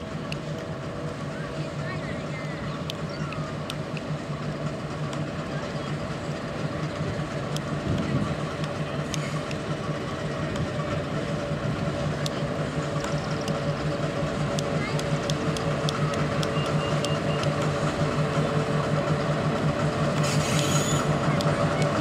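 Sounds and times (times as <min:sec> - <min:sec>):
diesel locomotive engine humming: 0:00.0 - 0:22.0.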